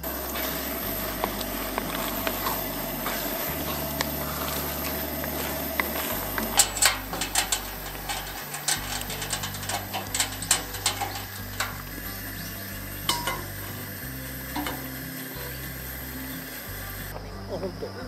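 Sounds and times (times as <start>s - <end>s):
metal utensil scraping cooking pot: 0.0s - 12.3s, 13.0s - 13.8s, 14.5s - 15.6s
background music with bass line: 0.0s - 18.0s.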